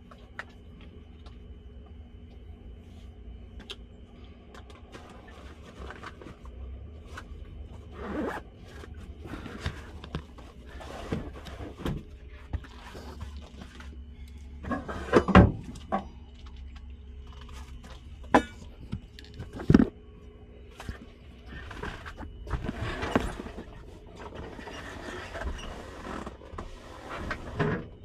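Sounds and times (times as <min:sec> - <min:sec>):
low steady hum: 0:00.0 - 0:28.0
zipper: 0:07.9 - 0:09.7.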